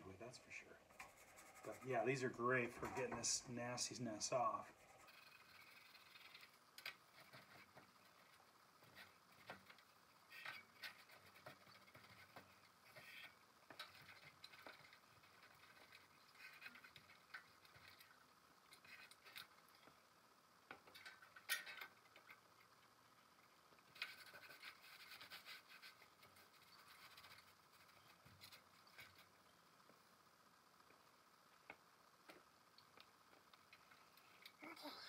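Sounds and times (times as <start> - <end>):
small clicks and taps: 30.8 - 34.6.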